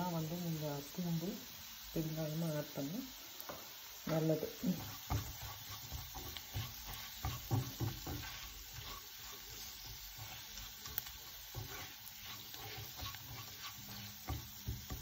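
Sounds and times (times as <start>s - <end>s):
oil sizzling: 0.0s - 15.0s
spatula scraping frying pan: 4.2s - 15.0s.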